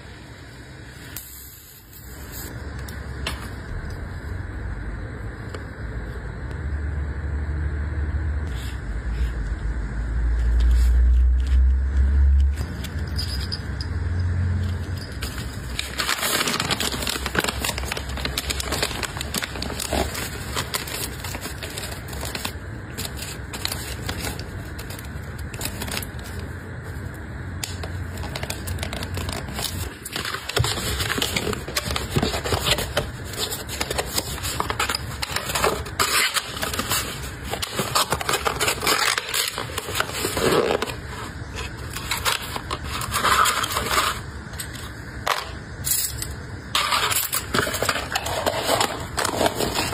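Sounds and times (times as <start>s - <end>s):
plastic bag crinkling: 14.7s - 44.9s, 46.7s - 49.9s
paper and card scraping: 28.1s - 44.3s.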